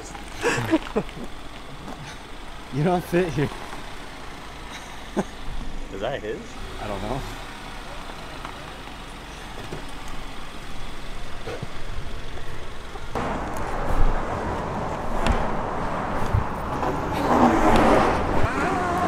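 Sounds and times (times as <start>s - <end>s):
car engine running: 0.0s - 19.0s
tyres on pavement: 0.0s - 19.0s
loud rushing noise: 13.2s - 18.7s.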